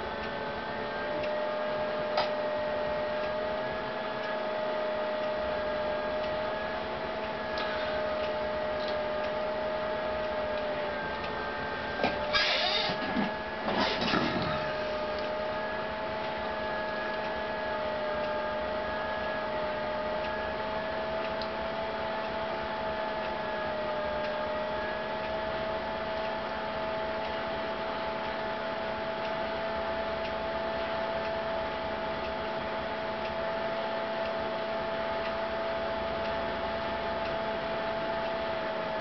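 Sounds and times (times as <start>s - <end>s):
wavering electrical whine: 0.0s - 39.0s.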